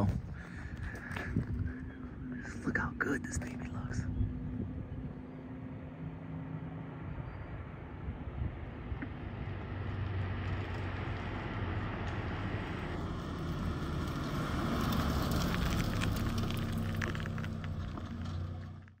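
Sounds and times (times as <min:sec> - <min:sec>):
car exhaust driving past: 0:04.3 - 0:18.9.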